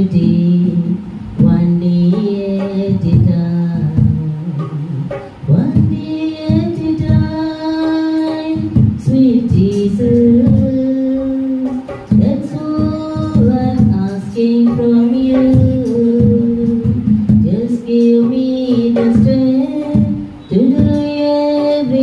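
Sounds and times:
conga drums beat: 0.0 - 22.0
woman singing into a microphone: 0.0 - 22.0.

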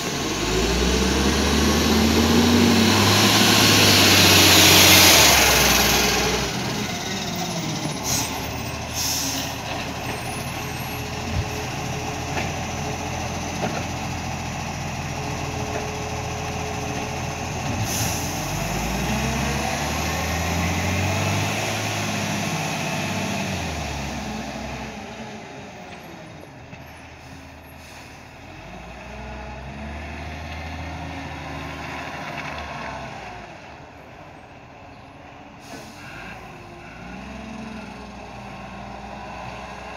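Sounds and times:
garbage truck diesel engine revving: 0.0 - 26.1, 27.2 - 34.1, 35.6 - 39.9
air brake hisses: 7.9 - 9.6, 17.8 - 18.7, 27.2 - 28.3, 35.6 - 36.4.

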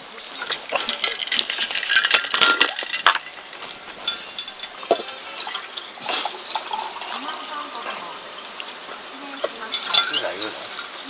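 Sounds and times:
dishes and utensils clinking: 0.1 - 11.0.

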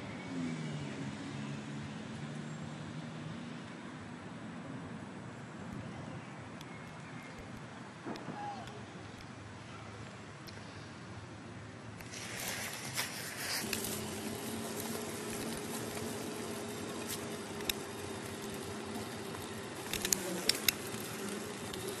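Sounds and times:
soft hiss: 7.0 - 22.0
low buzzing drone: 12.0 - 22.0
sharp clicks: 12.0 - 22.0.

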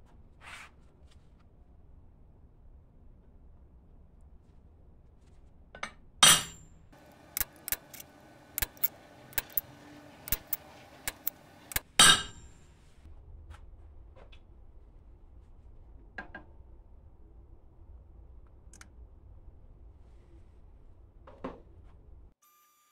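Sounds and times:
light metallic clicks: 7.0 - 11.9
ringing metal strikes: 10.3 - 12.5.

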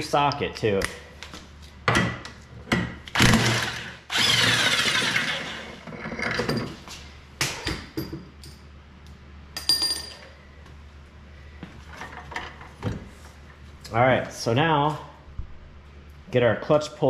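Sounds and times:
tool knocks and clanks: 1.8 - 3.0
impact wrench bursts: 3.1 - 5.8.

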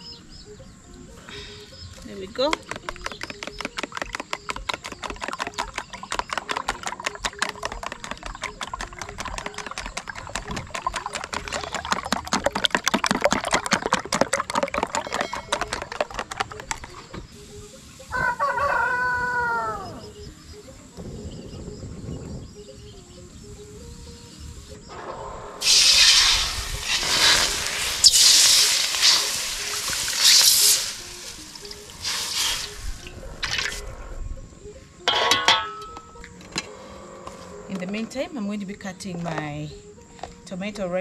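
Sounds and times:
fork beating eggs in tub: 2.5 - 17.0
rooster crowing: 18.1 - 20.1.

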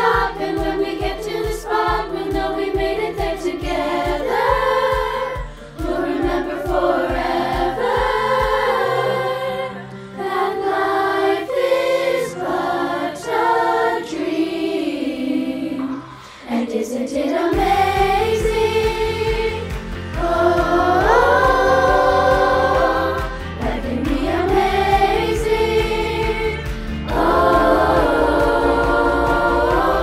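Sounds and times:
accompaniment track: 0.0 - 14.5, 16.9 - 30.0
children's choir singing: 0.0 - 30.0
low steady beat: 17.6 - 30.0.

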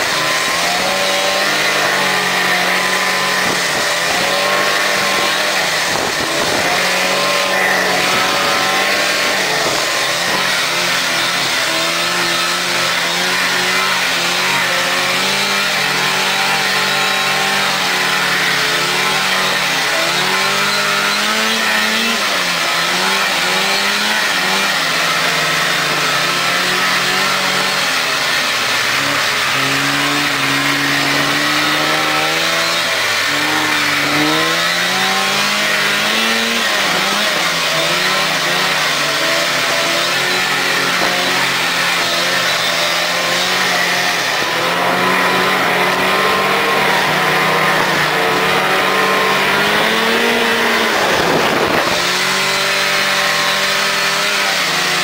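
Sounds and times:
snowmobile engine running: 0.0 - 55.0.

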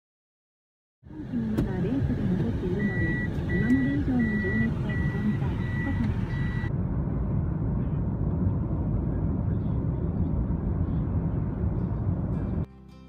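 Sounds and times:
car interior road rumble: 1.1 - 12.7
reversing alarm beep: 2.6 - 6.7.

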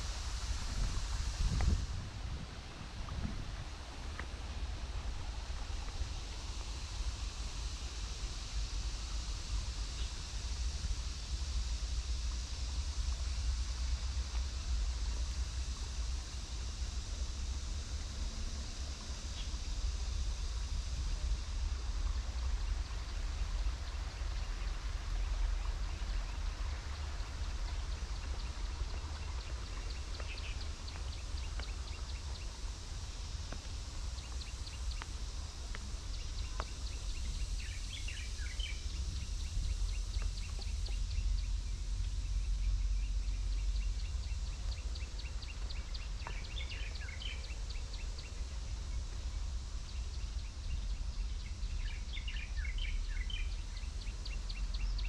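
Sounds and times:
low rumble: 0.0 - 55.0
birds chirping: 34.2 - 41.5, 42.2 - 48.7.

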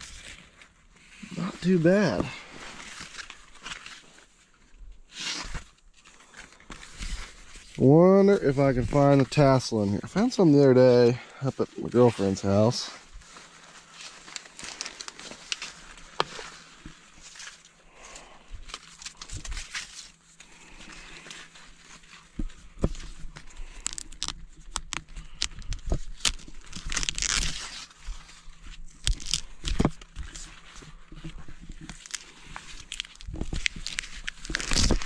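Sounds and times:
corn leaves crackling and tearing: 0.0 - 35.0.

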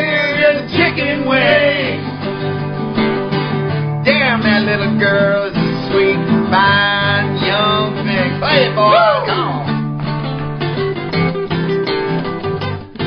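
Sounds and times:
man singing: 0.0 - 2.1, 4.0 - 9.7
acoustic guitar strummed and picked: 0.0 - 13.0.

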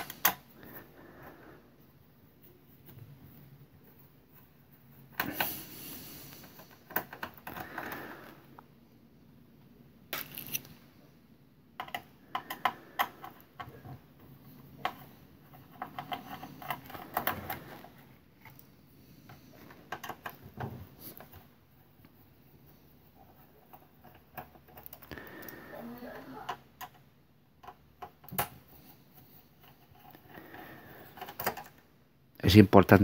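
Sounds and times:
clicks and clatters of plastic and metal: 6.4 - 7.9, 14.8 - 18.6, 19.3 - 21.5, 27.6 - 31.8.

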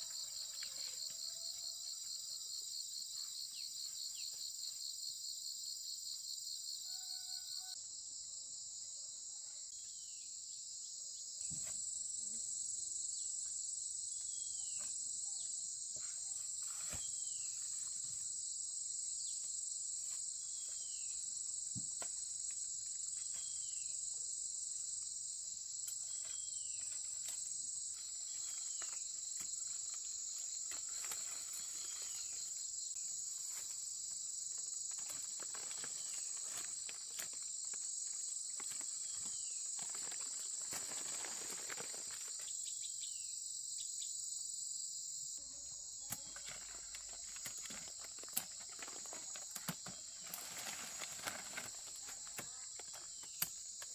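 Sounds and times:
shrill insect chorus: 0.0 - 7.8, 22.3 - 53.9.

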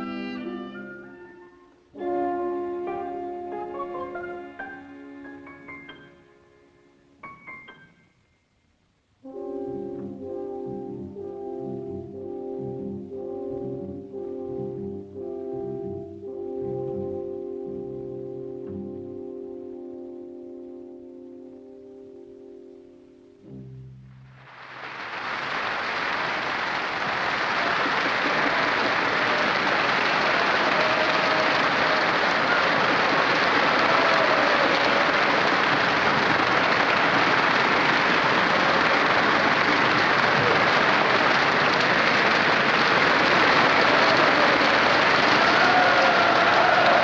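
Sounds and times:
audience applauding: 24.4 - 47.0.

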